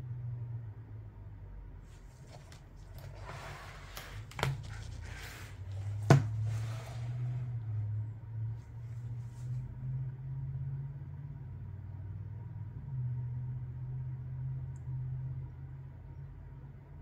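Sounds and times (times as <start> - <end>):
low steady hum: 0.0 - 17.0
book cover rustling: 1.8 - 7.6
book knocking on wooden table: 4.3 - 6.6.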